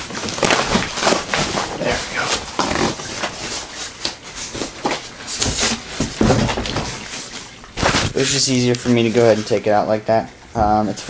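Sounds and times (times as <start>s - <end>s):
cardboard box ripping open: 0.1s - 3.8s.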